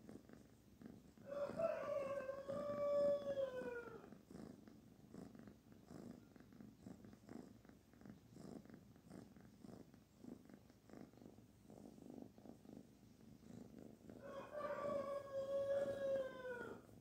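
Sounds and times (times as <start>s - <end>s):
kitten purring: 0.0s - 1.6s, 3.7s - 14.3s.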